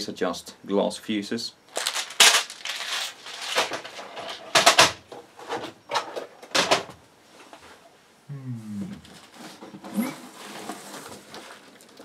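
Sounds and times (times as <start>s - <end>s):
rummaging in cardboard box: 1.7s - 4.5s, 9.2s - 12.0s.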